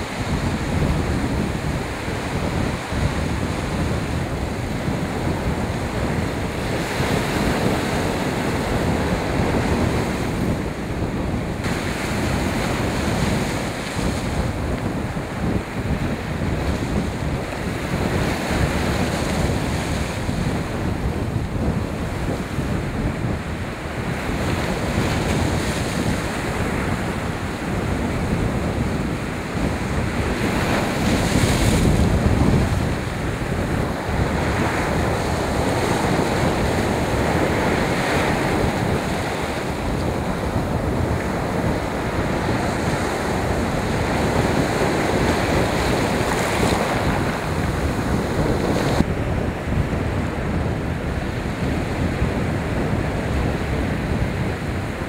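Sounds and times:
wave crashing: 0.0 - 55.0
wind buffeting microphone: 0.0 - 55.0.

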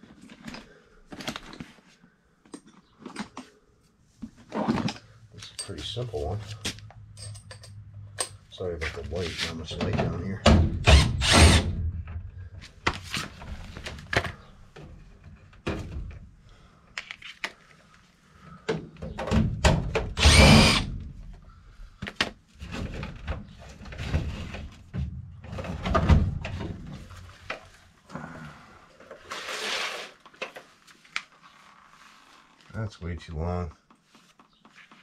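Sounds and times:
cordless driver driving screws: 10.8 - 11.7, 20.2 - 20.9.

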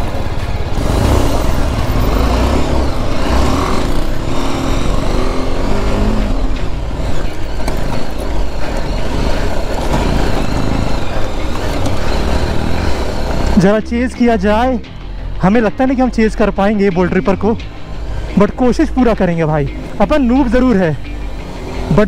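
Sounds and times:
motorcycle engine running: 0.0 - 15.8.

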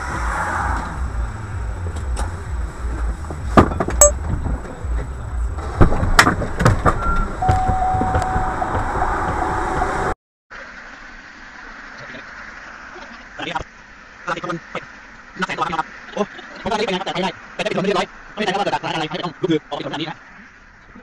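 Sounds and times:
low rumble inside car: 0.0 - 10.2.

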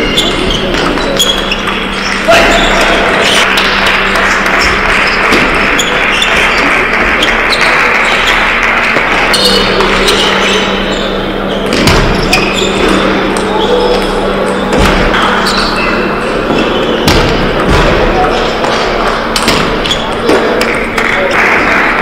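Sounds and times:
thud: 16.5 - 18.2.

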